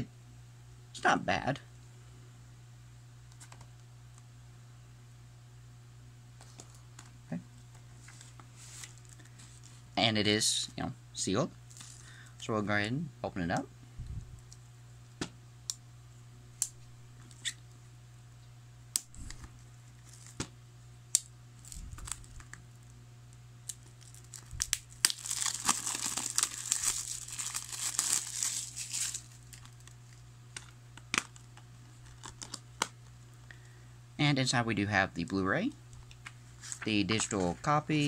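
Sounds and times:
steady low hum: 0.0 - 38.0
plastic wrap crinkling and tearing: 11.7 - 12.1, 21.6 - 22.6, 23.6 - 32.9.

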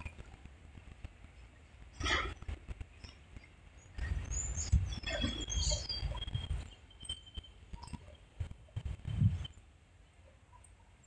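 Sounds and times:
wind buffeting microphone: 0.0 - 6.8, 7.7 - 9.6.

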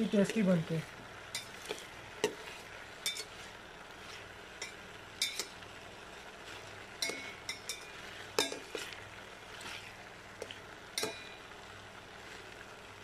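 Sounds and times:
oil sizzling: 0.0 - 13.0
metal spoon scraping a pot: 1.4 - 5.6, 7.0 - 9.0.

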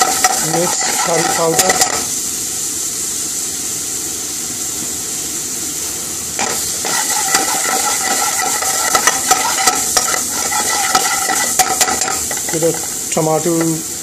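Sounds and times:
metal ladle scraping a pan: 0.0 - 2.1, 6.4 - 13.1
vegetables sizzling in hot oil: 0.0 - 14.0.

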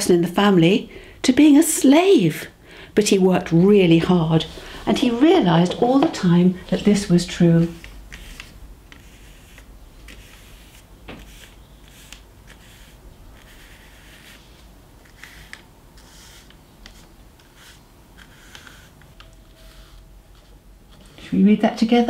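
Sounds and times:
paintbrush swishing on paper: 6.6 - 19.0.

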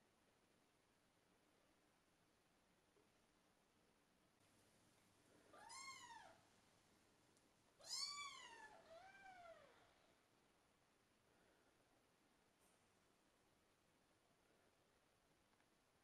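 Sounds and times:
cat meowing: 5.5 - 6.4, 7.8 - 9.9.

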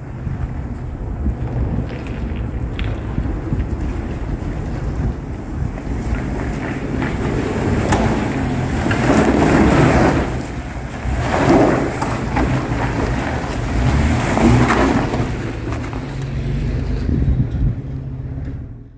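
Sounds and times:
tyres grinding over stones: 5.6 - 17.1
engine revving: 6.0 - 18.9.

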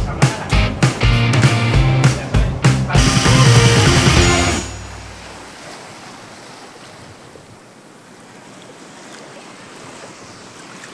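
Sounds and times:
background music: 0.0 - 5.4
water rushing like surf: 0.3 - 10.9.

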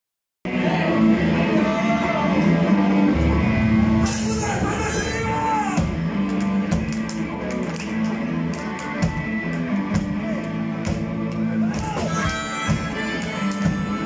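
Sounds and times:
live rock band: 0.5 - 14.0
harmonica bends: 12.1 - 14.0.

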